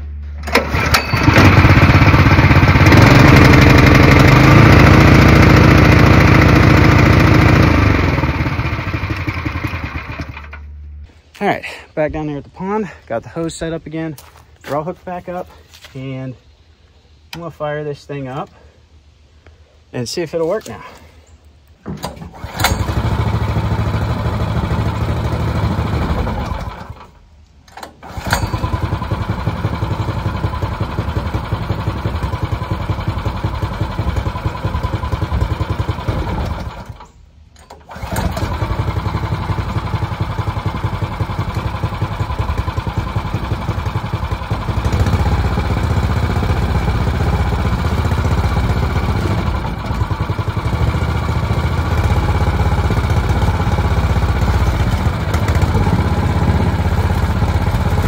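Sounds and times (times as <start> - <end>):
small gas engine running: 0.4 - 10.6, 22.3 - 27.2, 28.0 - 37.1, 37.7 - 58.0.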